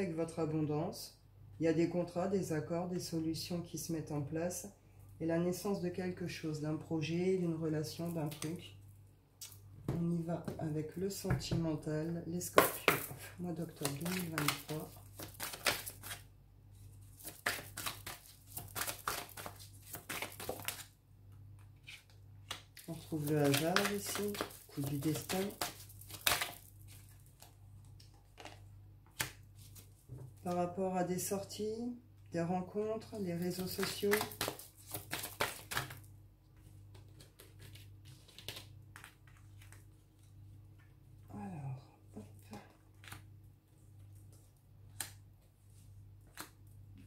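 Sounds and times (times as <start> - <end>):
low steady hum: 0.0 - 47.0
cards tapping and rustling: 12.5 - 16.2, 17.1 - 20.9, 21.6 - 30.4, 33.6 - 39.9
cards riffling and clicking: 33.7 - 36.0.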